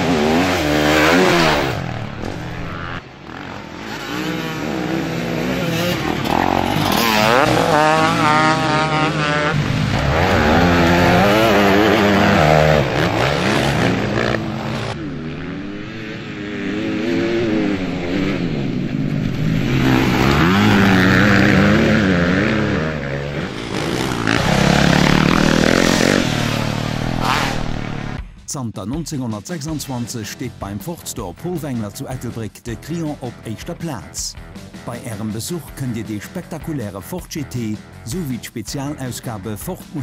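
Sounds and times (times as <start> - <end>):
motorcycles revving past: 0.0 - 28.2.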